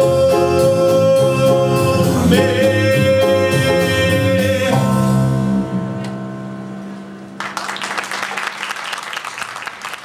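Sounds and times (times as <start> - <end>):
audience applause: 7.4 - 10.0.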